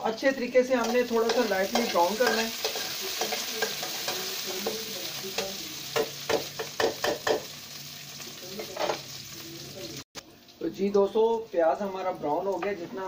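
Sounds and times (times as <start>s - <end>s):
onions sizzling in hot fat: 0.0s - 13.0s
metal spatula scraping pan: 0.8s - 4.9s.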